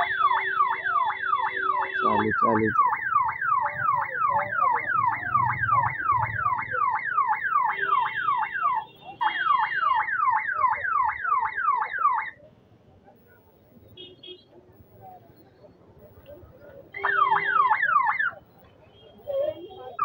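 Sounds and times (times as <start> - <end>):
electronic siren sweeps: 0.0 - 8.8.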